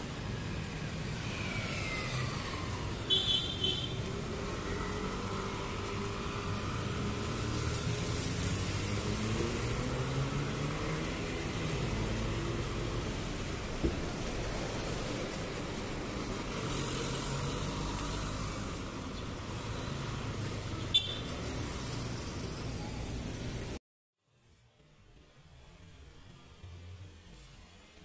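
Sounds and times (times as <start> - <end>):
road traffic passing: 0.0 - 23.8
vehicle horn toots: 3.1 - 4.0, 20.9 - 21.3.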